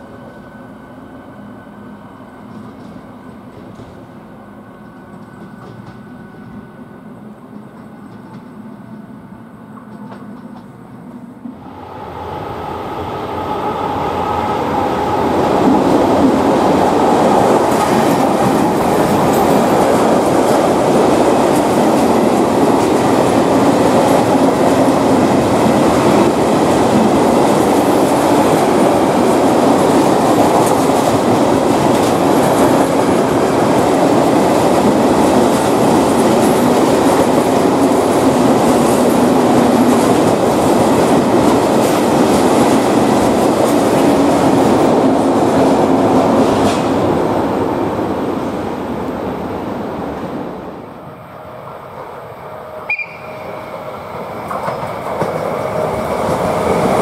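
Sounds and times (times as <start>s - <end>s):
electric train humming: 0.0s - 57.0s
freight train wheels clattering: 4.8s - 6.6s, 15.0s - 47.1s, 54.1s - 57.0s.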